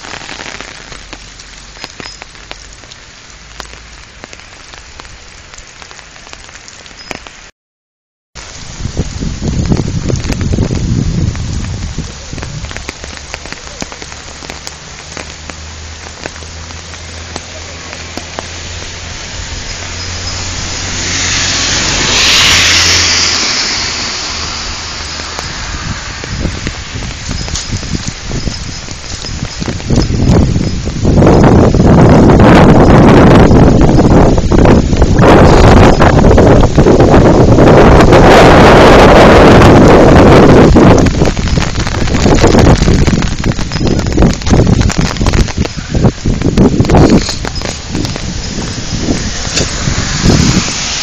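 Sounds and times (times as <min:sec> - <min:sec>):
rain falling on a wet road: 0:00.0 - 0:07.5, 0:08.4 - 0:51.0
single raindrop ticks: 0:00.3 - 0:07.4, 0:11.4 - 0:18.9.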